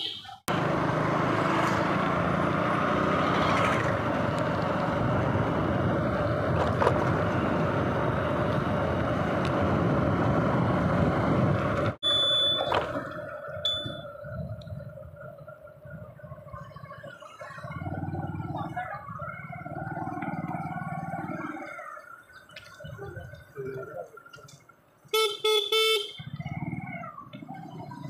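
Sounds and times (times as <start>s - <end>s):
vehicle engine: 0.0s - 24.5s.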